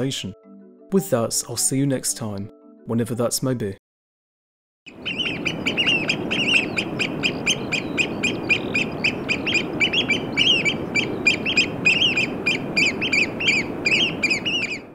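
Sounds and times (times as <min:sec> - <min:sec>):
oystercatcher piping: 0:04.9 - 0:14.9.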